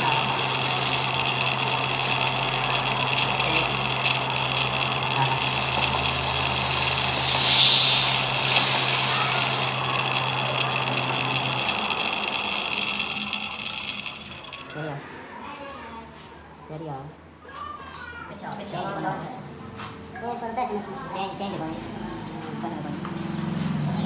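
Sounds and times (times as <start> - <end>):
lathe motor hum and whine: 0.0 - 15.0.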